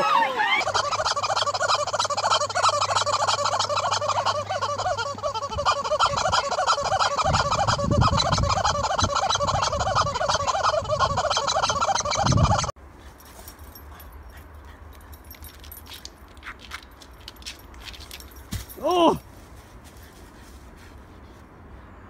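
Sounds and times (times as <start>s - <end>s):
rubber chicken toy squawking: 0.0s - 12.7s.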